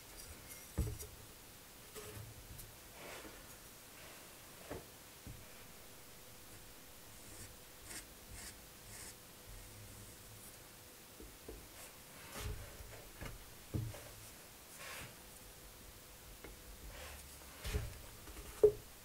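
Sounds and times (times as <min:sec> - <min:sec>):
soft knocks: 0:17.7 - 0:18.9.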